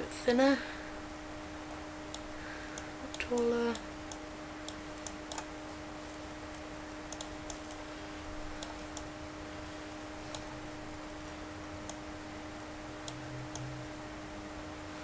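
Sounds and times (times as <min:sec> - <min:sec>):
faint steady hum: 0:00.0 - 0:15.0
computer mouse clicks: 0:06.5 - 0:07.8.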